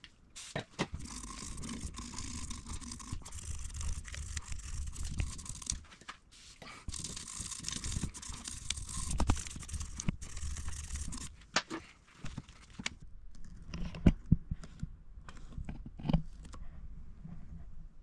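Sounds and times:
cotton swab scrubbing: 1.0s - 11.3s.

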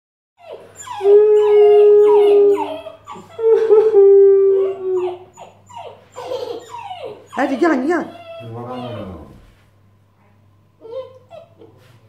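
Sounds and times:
puppy howling: 0.4s - 9.6s.

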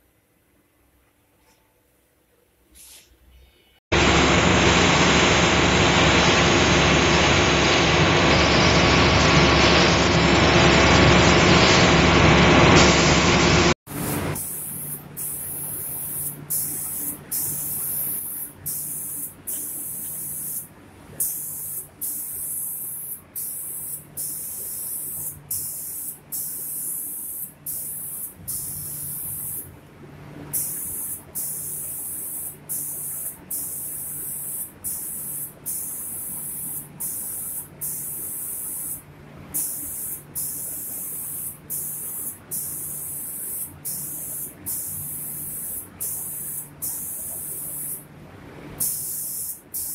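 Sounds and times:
low machine hum: 4.0s - 21.2s
spray gun hissing: 13.9s - 29.7s, 30.5s - 39.0s, 39.6s - 48.0s, 48.8s - 49.9s.

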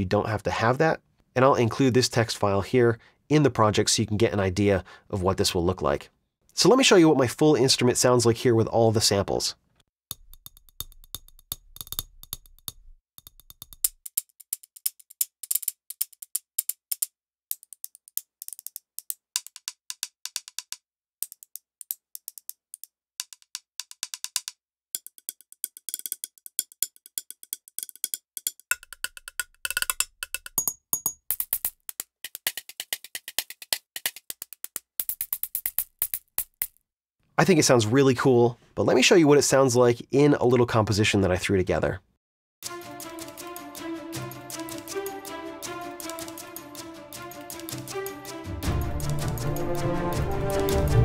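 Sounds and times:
dry percussion clicks and taps: 10.1s - 36.8s, 42.6s - 51.0s.

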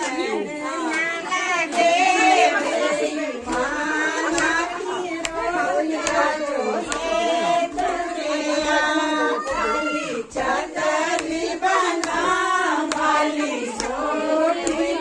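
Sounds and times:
women singing folk song: 0.0s - 15.0s
hand claps: 0.8s - 2.0s, 3.4s - 8.2s, 10.4s - 15.0s.

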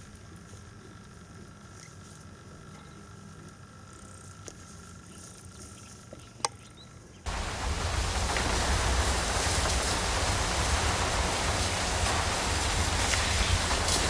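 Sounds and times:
rushing noise with deep rumble: 7.3s - 14.0s.

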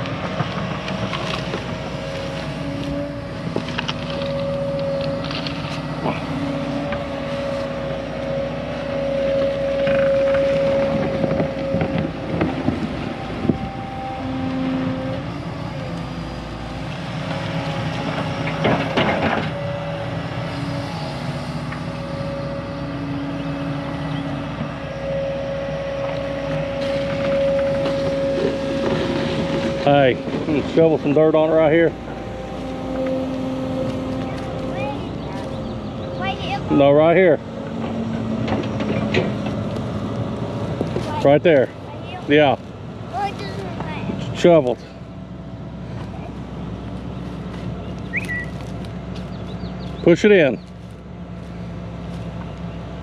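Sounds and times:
hydraulic whine: 0.0s - 41.5s
excavator diesel engine running: 0.0s - 53.0s.

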